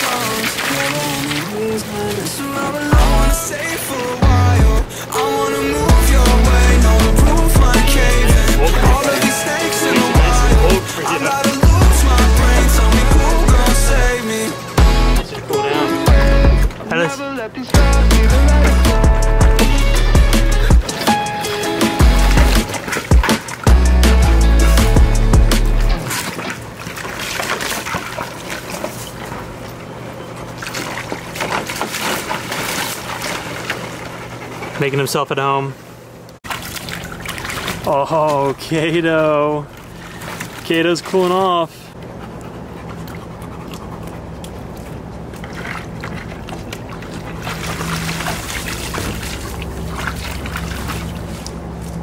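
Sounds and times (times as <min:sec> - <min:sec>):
water splashing and sloshing: 0:00.0 - 0:35.2, 0:35.8 - 0:52.0
steady low hum: 0:01.6 - 0:21.0.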